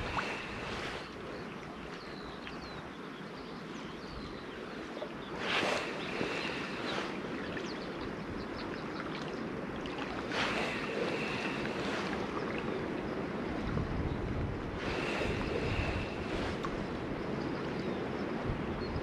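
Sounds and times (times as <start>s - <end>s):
water lapping at shore: 0.0s - 18.6s
wind on microphone: 0.0s - 19.0s.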